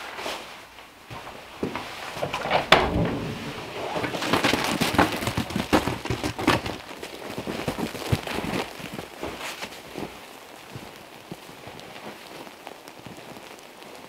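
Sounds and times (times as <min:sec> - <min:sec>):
footsteps crunching through icy snow: 0:03.6 - 0:13.4.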